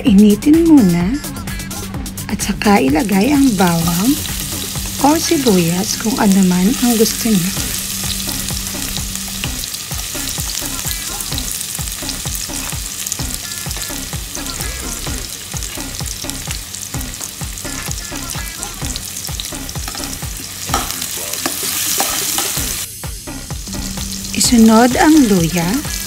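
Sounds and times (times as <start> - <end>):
garlic sizzling in oil: 3.0 - 26.0
metal ladle knocking pan: 20.7 - 22.6.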